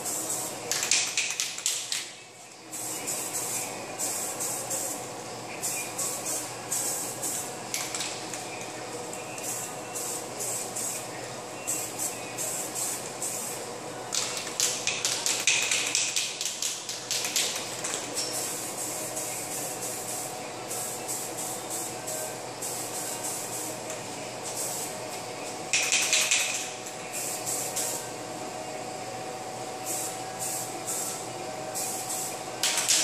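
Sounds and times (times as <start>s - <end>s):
spray-paint can hissing: 2.7s - 5.0s, 5.6s - 8.5s, 9.4s - 11.1s, 11.7s - 25.1s, 25.7s - 28.1s, 29.8s - 31.2s, 31.8s - 33.0s.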